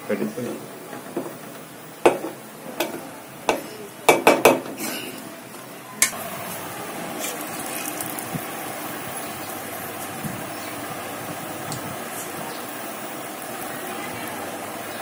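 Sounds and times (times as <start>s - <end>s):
hot syrup hissing into water: 6.1s - 15.0s.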